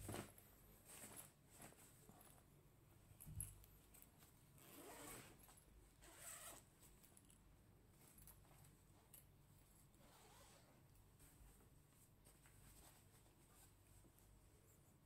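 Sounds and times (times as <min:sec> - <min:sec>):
zipper pull click: 0:04.6 - 0:05.4
fabric zipper being pulled open: 0:04.6 - 0:06.6, 0:10.0 - 0:10.8.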